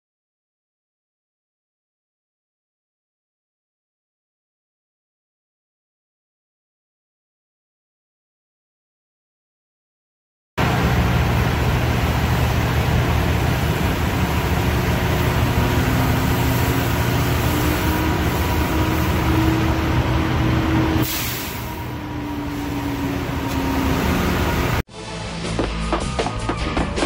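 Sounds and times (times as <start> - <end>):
diesel truck engine running: 10.6 - 24.8
air hiss: 21.0 - 21.9.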